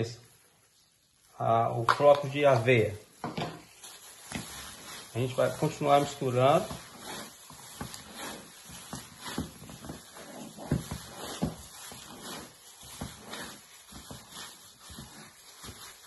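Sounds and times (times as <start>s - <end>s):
plastic crinkling: 0.2s - 16.0s
wet squishing of meat: 3.8s - 16.0s.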